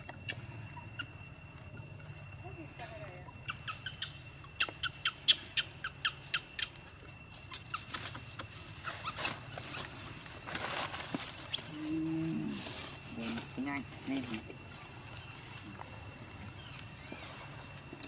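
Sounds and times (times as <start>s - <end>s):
sharp chirps: 0.0s - 9.8s
high insect drone: 0.0s - 18.0s.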